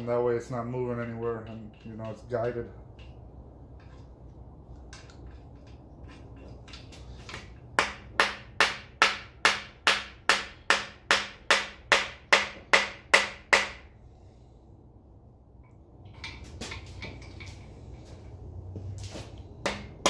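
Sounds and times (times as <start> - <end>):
hammer tapping metal: 4.9 - 13.9, 19.6 - 20.0.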